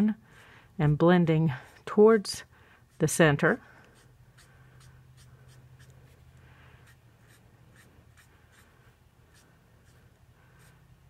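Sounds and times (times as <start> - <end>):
marker strokes on paper: 2.9 - 11.0.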